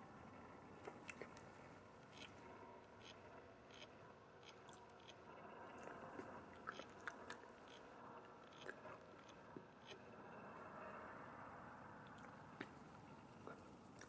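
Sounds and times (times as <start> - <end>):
animal chewing and crunching: 0.8 - 10.1, 12.0 - 14.0.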